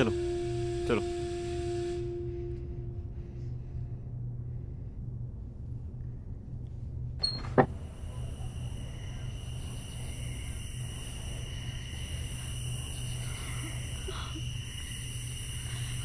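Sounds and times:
insects chirring: 0:00.0 - 0:04.0, 0:07.7 - 0:16.0
low steady hum: 0:00.0 - 0:16.0.

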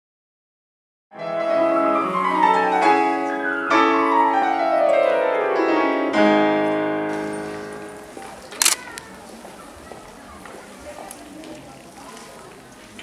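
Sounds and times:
grand piano classical piece: 0:01.1 - 0:08.5.

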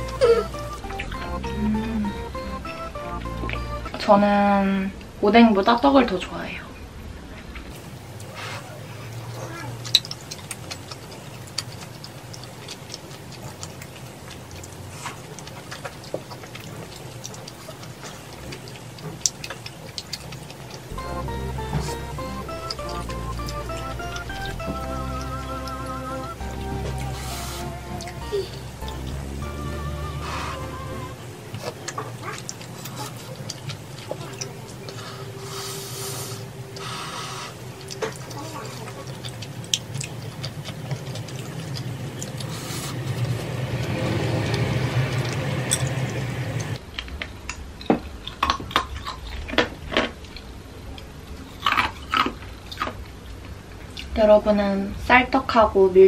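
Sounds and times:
background music: 0:00.0 - 0:04.3, 0:20.9 - 0:31.4
low steady hum: 0:00.0 - 0:48.3
wet chewing mouth clicks: 0:09.3 - 0:29.1, 0:31.5 - 0:46.8.

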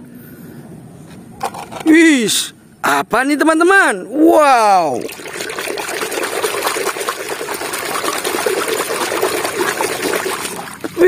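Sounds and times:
water sloshing in plastic basin: 0:01.4 - 0:01.9, 0:04.9 - 0:11.0
hand scrubbing toy underwater: 0:04.9 - 0:11.0.

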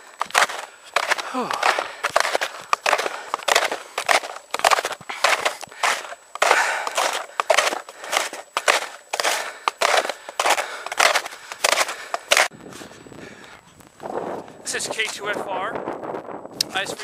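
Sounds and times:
footsteps crunching in snow: 0:00.0 - 0:13.0.

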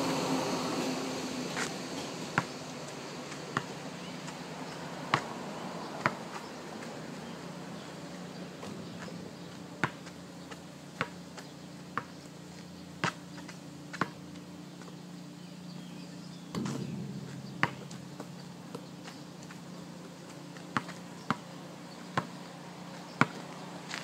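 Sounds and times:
basketball bouncing on asphalt: 0:01.6 - 0:15.0, 0:16.5 - 0:23.6
faint low hum: 0:14.3 - 0:23.8.

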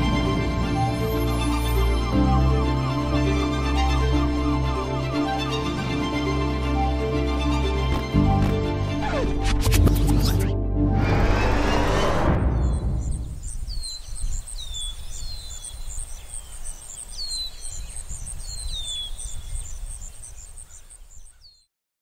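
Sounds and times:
music track: 0:00.0 - 0:12.6.

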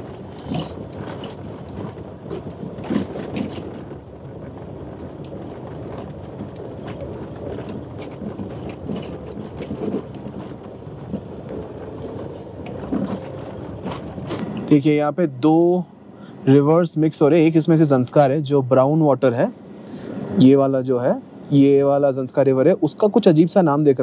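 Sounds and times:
car body knocking and rattling: 0:00.0 - 0:14.4.

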